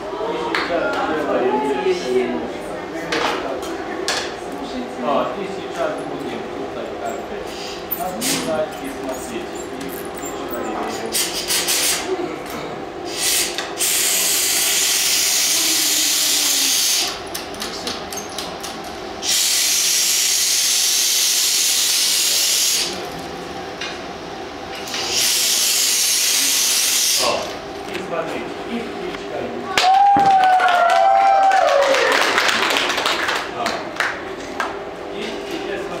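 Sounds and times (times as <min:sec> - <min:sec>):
steady hum: 0:00.0 - 0:30.4
air blow gun hissing: 0:13.1 - 0:17.2, 0:19.2 - 0:23.0, 0:24.9 - 0:27.5.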